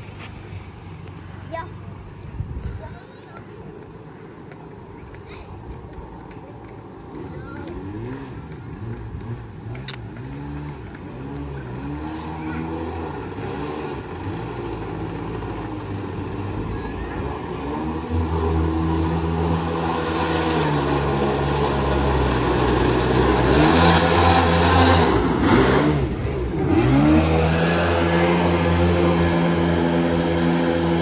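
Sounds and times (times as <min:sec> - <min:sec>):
boat engine revving: 0:07.1 - 0:31.0.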